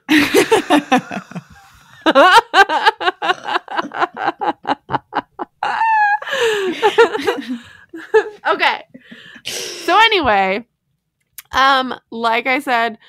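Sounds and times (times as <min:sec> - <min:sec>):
women laughing: 0:00.1 - 0:08.4.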